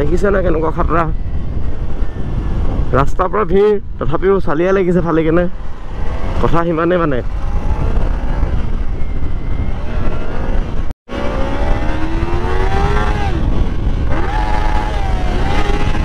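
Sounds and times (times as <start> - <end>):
wind rumble on microphone: 0.0 - 16.0
motorcycle engine accelerating: 5.6 - 16.0.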